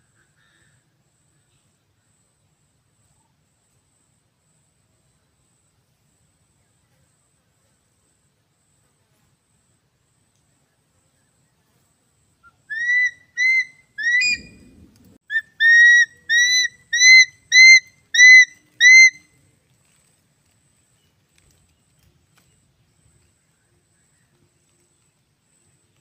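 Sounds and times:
eagle calling: 12.4 - 19.2
low rustle: 14.4 - 15.2.

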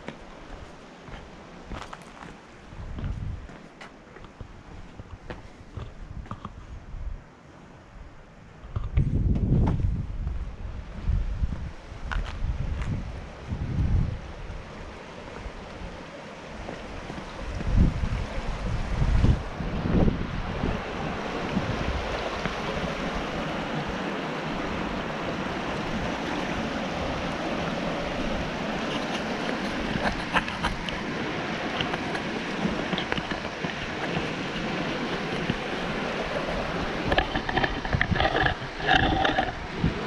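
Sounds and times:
wind buffeting microphone: 2.6 - 3.6, 4.3 - 7.3, 8.0 - 40.0
river rushing over rocks: 14.2 - 40.0.

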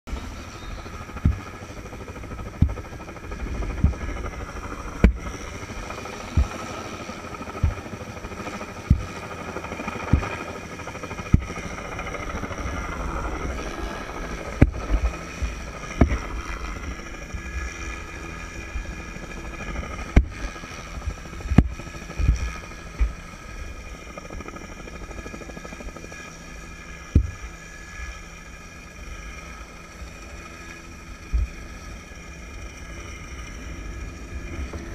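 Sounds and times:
wind buffeting microphone: 0.1 - 23.3
helicopter turbine and rotor: 0.1 - 34.9.

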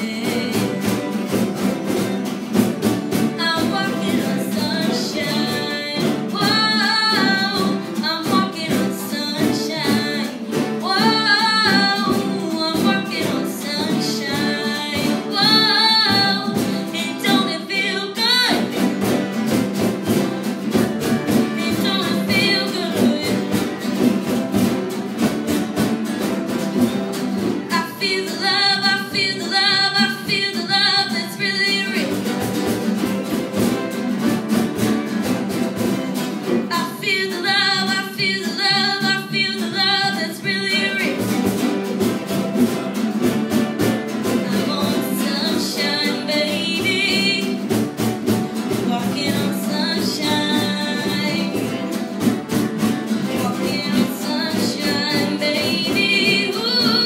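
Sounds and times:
woman singing: 0.0 - 1.7, 3.1 - 19.4, 21.0 - 24.3, 27.6 - 32.7, 36.5 - 42.0, 43.6 - 57.0
acoustic guitar: 0.0 - 57.0.

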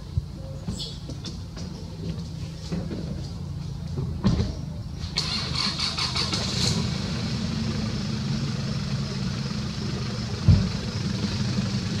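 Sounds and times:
low engine-like rumble: 0.0 - 12.0.

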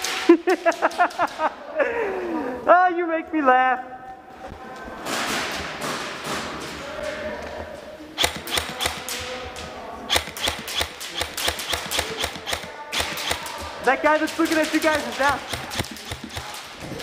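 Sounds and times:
airsoft gunfire: 8.2 - 17.0.

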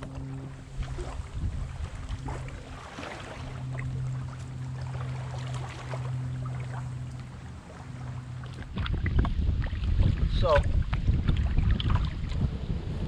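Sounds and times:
wind noise on microphone: 0.0 - 4.2, 8.4 - 13.0
kayak paddle strokes: 0.0 - 12.7
steady low hum: 0.0 - 13.0
water splashes: 0.0 - 13.0.

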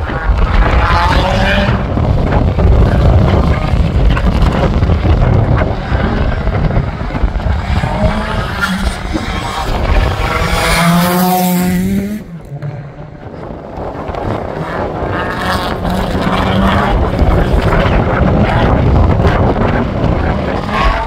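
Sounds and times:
race car engine running hard: 0.0 - 21.0
race car accelerating past: 7.6 - 13.2.

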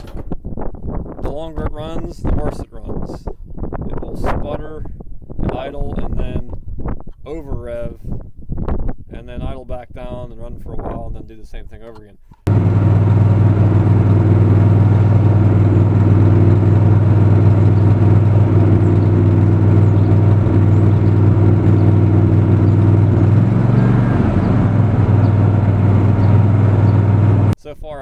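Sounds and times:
generator engine running roughly: 12.5 - 27.6.

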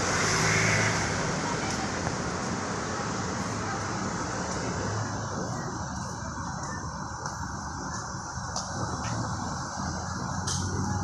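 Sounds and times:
cars driving past: 0.0 - 6.4
road noise hum: 0.0 - 11.0.

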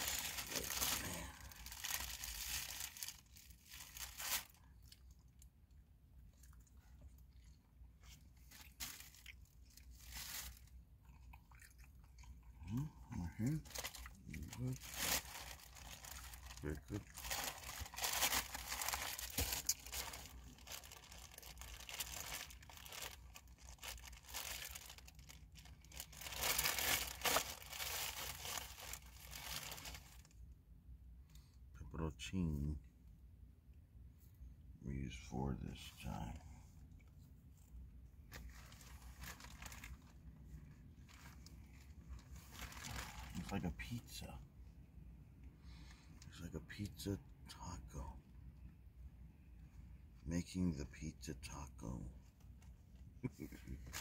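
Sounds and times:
plastic bag crinkling: 0.0 - 5.2, 8.4 - 10.7, 13.6 - 30.3, 38.3 - 40.4, 41.0 - 43.5, 53.8 - 54.0
crunching and chewing: 0.0 - 30.2.

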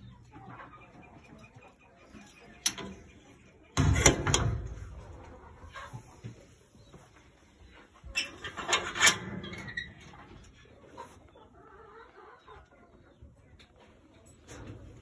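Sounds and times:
chickens clucking: 0.0 - 15.0
wire-mesh cage clattering: 3.8 - 5.4, 8.1 - 10.5.

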